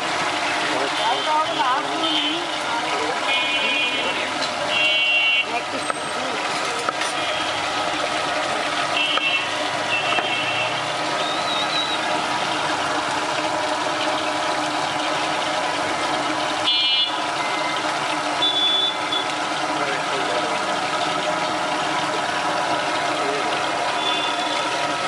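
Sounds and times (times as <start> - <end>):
street traffic: 0.0 - 25.0
short horn beeps: 3.3 - 5.5, 16.6 - 17.8, 18.4 - 19.3, 24.0 - 24.6.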